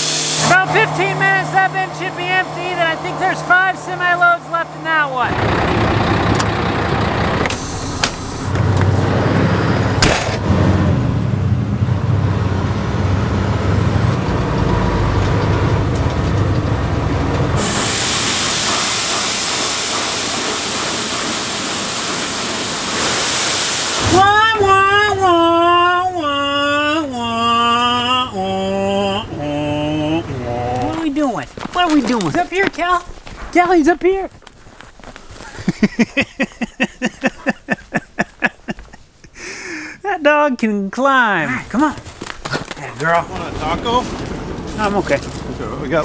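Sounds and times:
clunks: 0:00.0 - 0:09.2, 0:13.8 - 0:17.6
diesel truck engine running: 0:00.0 - 0:39.2, 0:41.5 - 0:46.0
beans pouring with rushing hiss: 0:17.6 - 0:24.0
person singing: 0:24.0 - 0:31.0.

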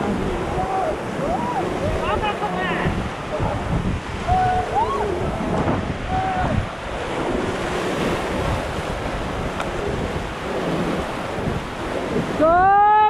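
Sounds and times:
river rapids rushing: 0:00.0 - 0:13.0
wind buffeting microphone: 0:00.0 - 0:13.0
loud rising shout: 0:04.2 - 0:06.6.

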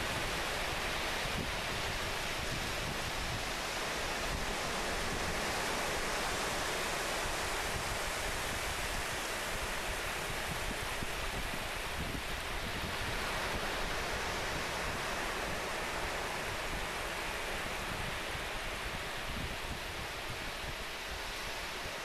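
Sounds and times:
surf washing on sandy beach: 0:00.0 - 0:22.0.

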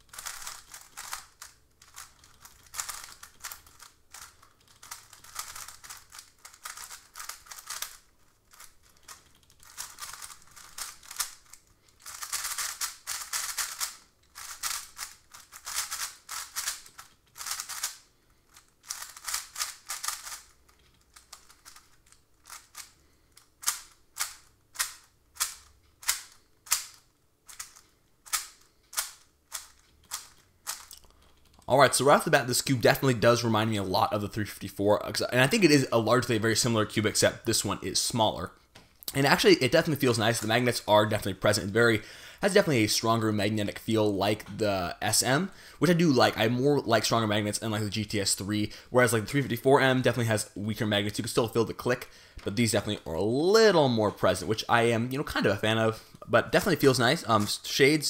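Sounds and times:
puzzle cube clicking as turned: 0:00.0 - 0:31.7.

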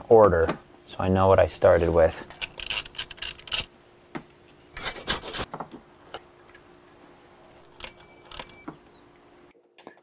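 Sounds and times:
socket wrench ratchet clicking: 0:02.4 - 0:03.7.

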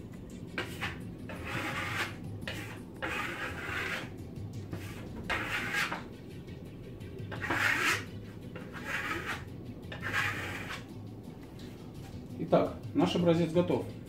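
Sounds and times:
trowel scraping plaster: 0:00.6 - 0:04.1, 0:04.7 - 0:06.0, 0:07.3 - 0:10.8.

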